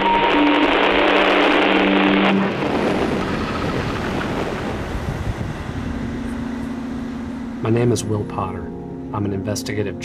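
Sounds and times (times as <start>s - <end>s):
loud rushing noise: 0.0s - 6.2s
low drone tones: 0.0s - 10.0s.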